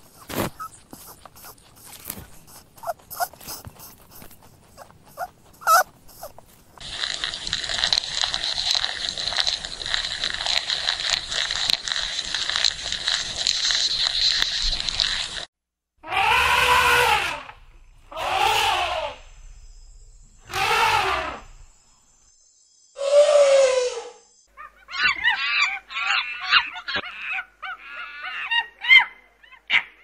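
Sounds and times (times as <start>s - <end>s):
dense crackling with hiss: 0.0s - 15.5s
elephants trumpeting: 5.2s - 6.4s, 16.0s - 19.4s, 20.4s - 21.6s.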